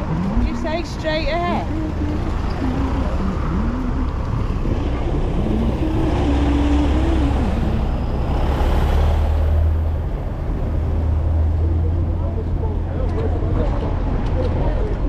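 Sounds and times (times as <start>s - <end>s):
road vehicles rumbling: 0.0s - 15.0s.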